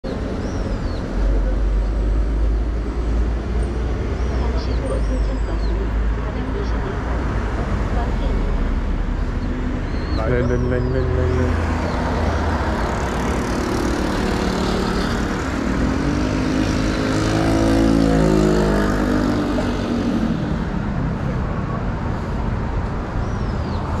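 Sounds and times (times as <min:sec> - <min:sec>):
city road traffic: 0:00.0 - 0:24.0
vehicle engine passing by: 0:06.8 - 0:24.0.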